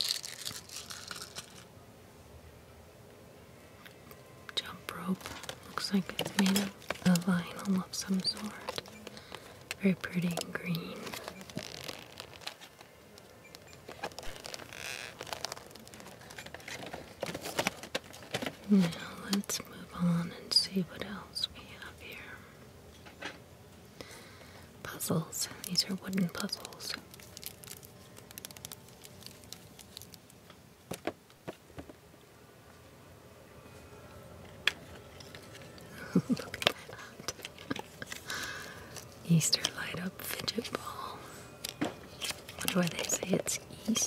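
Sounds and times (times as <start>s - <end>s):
plastic wrap crinkling: 0.0s - 1.7s, 4.6s - 19.6s, 25.0s - 30.5s, 34.6s - 40.8s, 41.5s - 44.0s
scratchy rustle: 5.0s - 12.9s, 13.8s - 19.0s
plastic rope and card clicking: 5.2s - 18.7s, 25.6s - 31.0s, 41.8s - 44.0s.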